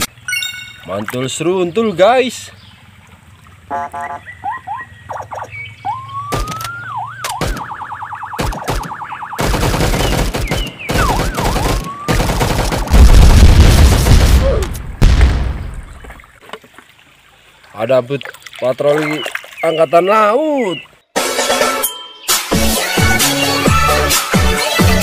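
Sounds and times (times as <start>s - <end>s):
warbling siren-like tones: 3.7s - 9.5s
machine-gun fire: 8.4s - 15.6s
rising whistles: 11.0s - 12.2s
loud explosion: 12.9s - 15.9s.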